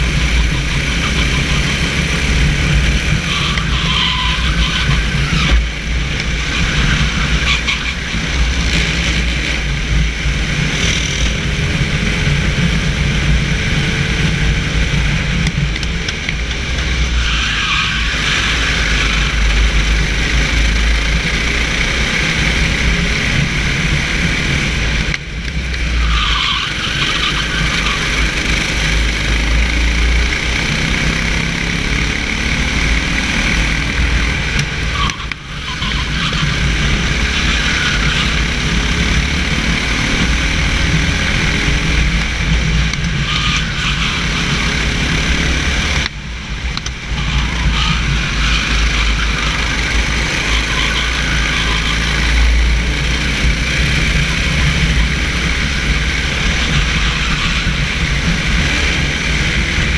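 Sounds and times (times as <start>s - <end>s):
kart engine at racing revs: 0.0s - 59.9s.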